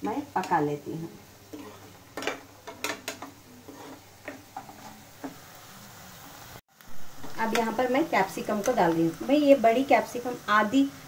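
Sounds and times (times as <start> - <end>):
food sizzling in oil: 0.0 - 11.0
spatula scraping a pan: 1.4 - 5.5.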